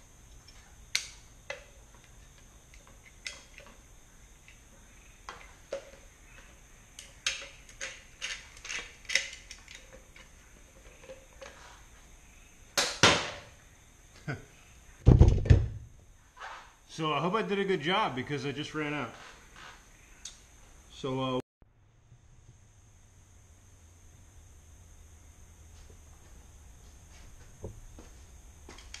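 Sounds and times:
caulk gun clicks and rattles: 0:07.0 - 0:10.3.

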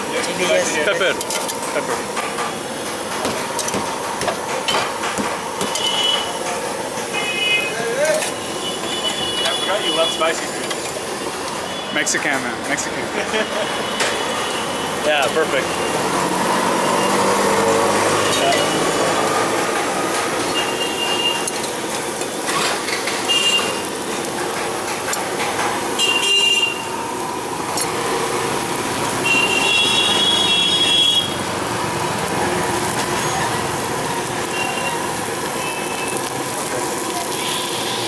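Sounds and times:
street food stall noise: 0:00.0 - 0:38.0
short high-pitched squeals: 0:20.4 - 0:21.6.

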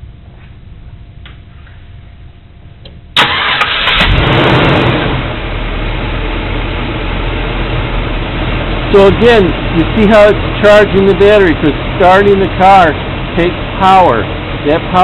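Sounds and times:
car engine starting and idling: 0:02.9 - 0:15.0.

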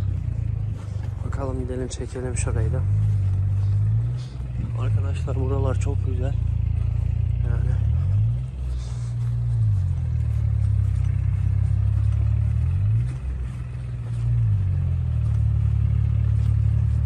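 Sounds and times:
diesel tractor engine labouring: 0:00.0 - 0:17.0.

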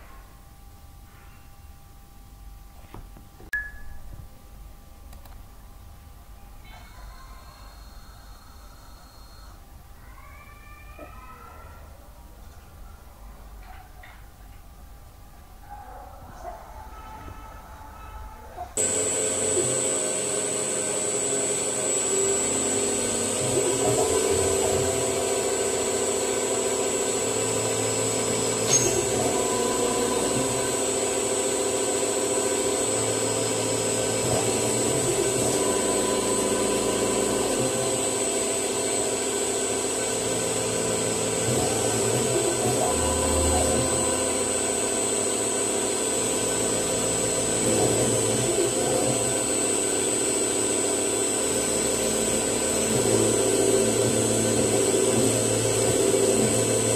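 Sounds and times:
cutter scraping through metal: 0:18.8 - 0:56.9
milling machine whine: 0:18.8 - 0:56.9.

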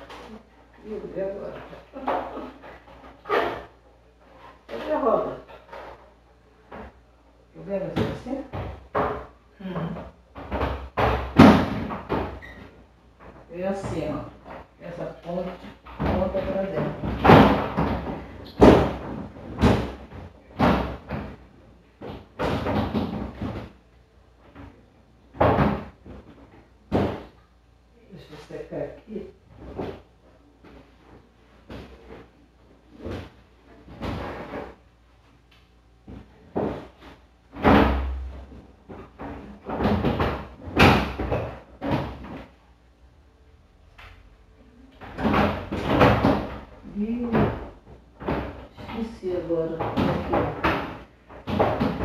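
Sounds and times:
plastic basket knocking and clattering: 0:07.9 - 0:12.4, 0:15.4 - 0:21.4, 0:22.0 - 0:23.8, 0:24.5 - 0:27.3, 0:36.1 - 0:42.5, 0:45.0 - 0:52.0.

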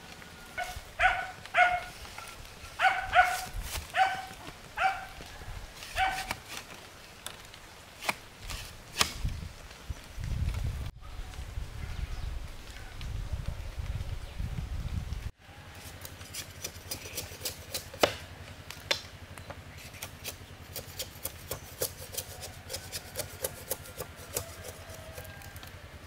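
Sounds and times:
dog barking in high yips: 0:00.6 - 0:01.9, 0:02.8 - 0:05.2, 0:06.0 - 0:06.3.

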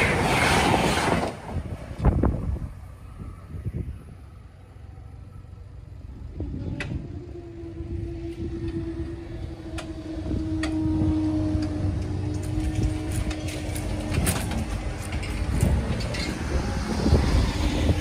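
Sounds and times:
train rumbling: 0:00.0 - 0:18.0.

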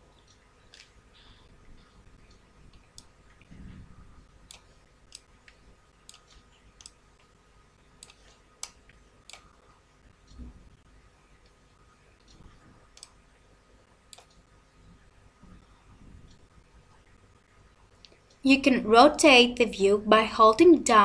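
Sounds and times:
computer mouse clicking: 0:00.2 - 0:01.0, 0:04.3 - 0:07.4, 0:08.0 - 0:10.4, 0:12.2 - 0:13.3, 0:14.1 - 0:14.5
low dull bumps: 0:03.4 - 0:04.3.

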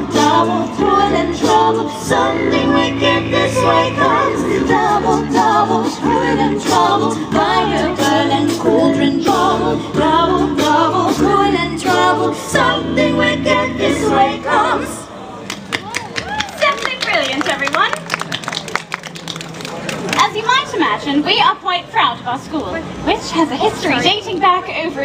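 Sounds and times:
a cappella group singing: 0:00.0 - 0:15.1.

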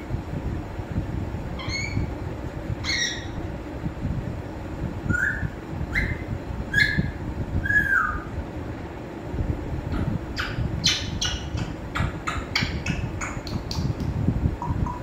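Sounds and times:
parrot whistling: 0:01.6 - 0:02.1, 0:02.8 - 0:03.4, 0:05.1 - 0:08.3.

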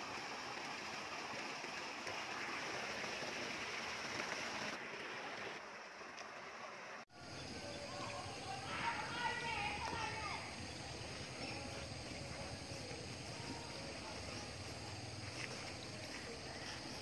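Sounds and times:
steady rushing outdoor noise: 0:06.9 - 0:17.0.

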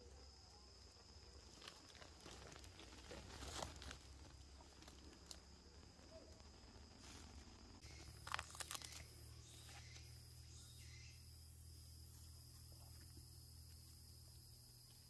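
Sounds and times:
dry fibre crackling and snapping: 0:08.0 - 0:09.1.

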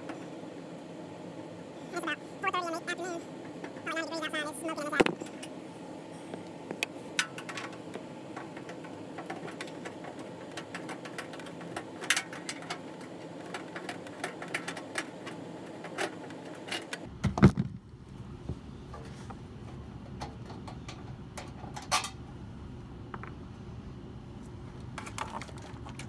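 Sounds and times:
steady background hum: 0:00.0 - 0:26.0.

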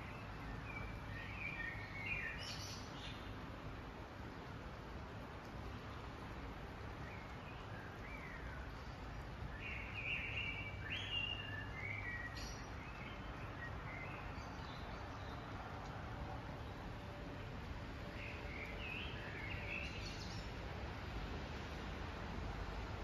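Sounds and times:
distant city traffic rumble: 0:00.0 - 0:23.0
bird calls and chirps: 0:07.0 - 0:15.5, 0:18.2 - 0:20.5.

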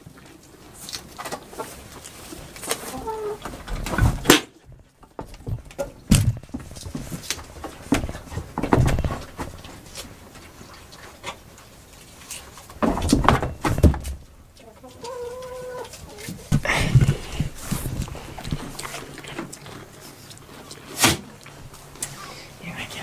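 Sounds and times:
hooves on wooden boards: 0:03.4 - 0:09.8, 0:15.1 - 0:20.2.

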